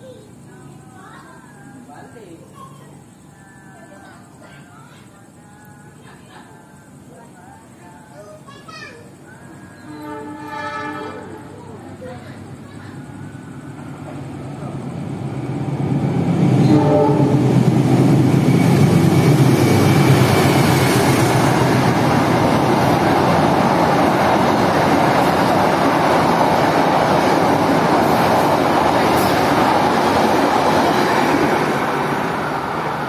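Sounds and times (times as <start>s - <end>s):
train carriages rushing past: 9.0s - 33.0s
diesel locomotive rumble: 9.1s - 33.0s.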